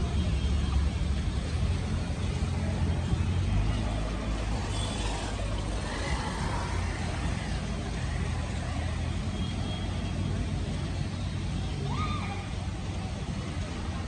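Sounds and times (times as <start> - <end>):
traffic rumble: 0.0 - 14.0
motor scooter passing: 1.8 - 9.3.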